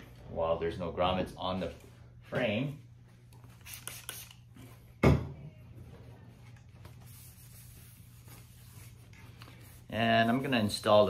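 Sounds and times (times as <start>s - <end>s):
cloth wiping racquet frame: 6.9s - 11.0s.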